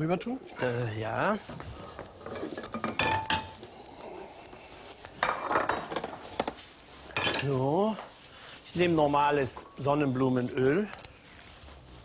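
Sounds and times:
utensils and dishes clattering: 2.2s - 3.6s, 5.2s - 7.6s.

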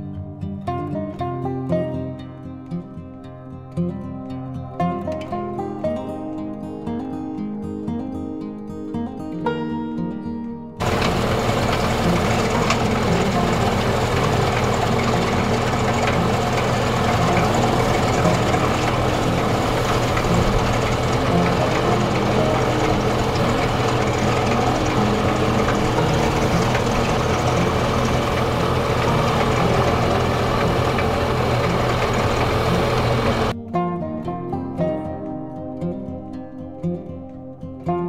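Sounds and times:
diesel truck engine running: 10.8s - 33.6s
trailer unloading chopped forage: 10.8s - 33.6s.

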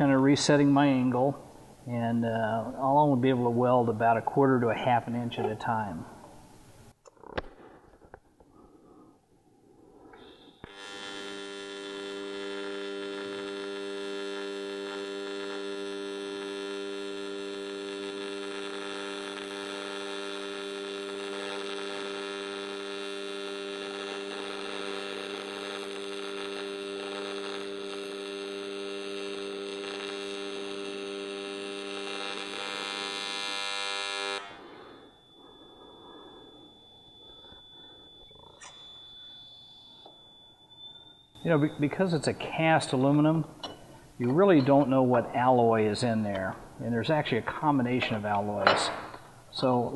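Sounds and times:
welding arc buzzing: 10.1s - 45.2s.

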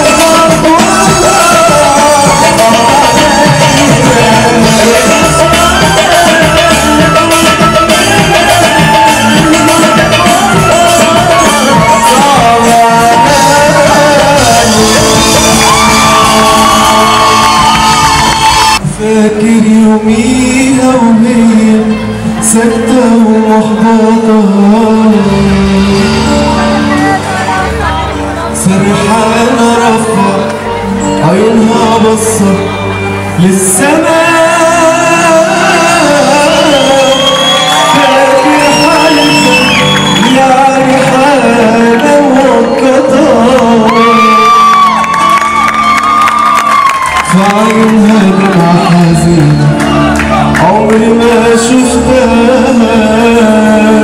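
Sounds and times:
man singing: 0.0s - 18.2s, 18.8s - 45.8s, 47.0s - 54.0s
hand drums: 0.0s - 18.8s
keyboard: 0.0s - 54.0s.

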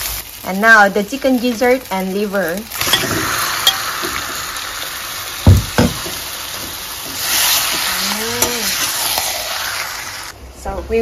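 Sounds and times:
meat sizzling in oil: 0.0s - 10.3s
loud knocks: 5.4s - 6.8s.

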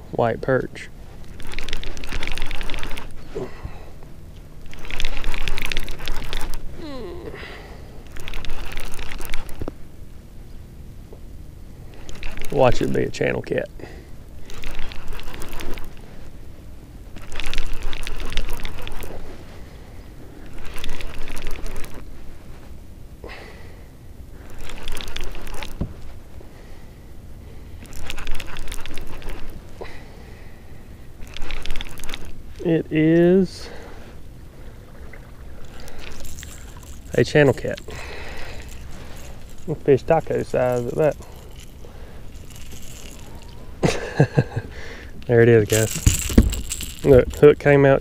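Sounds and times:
fishing reel whirring clicks: 1.3s - 3.1s, 4.6s - 6.6s, 35.7s - 43.6s, 45.7s - 47.5s.

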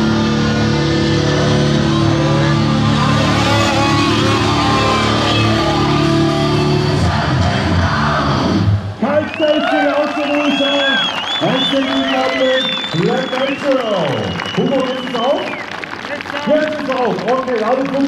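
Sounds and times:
rock music with electric guitar: 0.0s - 9.0s.

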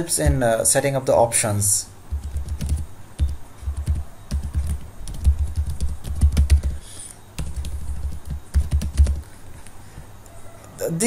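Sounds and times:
keyboard typing: 2.1s - 6.8s, 7.4s - 9.3s.

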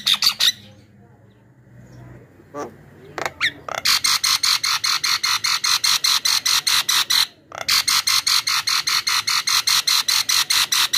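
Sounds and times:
bird harsh chattering rattle: 0.0s - 0.7s, 3.2s - 10.9s.

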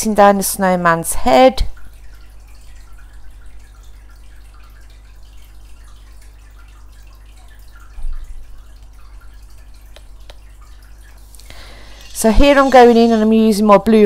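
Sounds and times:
low steady hum: 0.0s - 14.0s
faint light ticks: 9.9s - 10.5s.

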